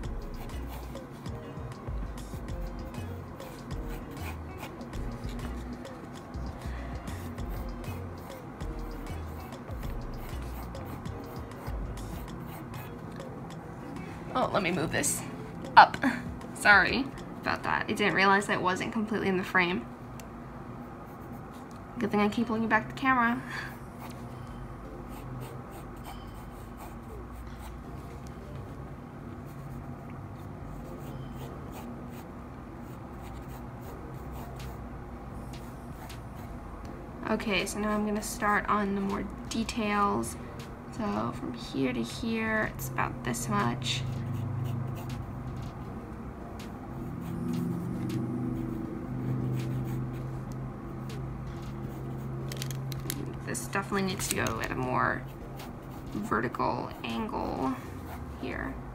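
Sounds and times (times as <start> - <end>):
steady low hum: 0.0 - 58.9
pencil scratching on paper: 0.3 - 1.2, 2.3 - 5.8, 7.1 - 13.0, 25.1 - 27.8, 30.7 - 32.2, 32.8 - 34.8, 35.6 - 36.5, 44.0 - 45.7, 46.9 - 50.4, 54.2 - 58.4.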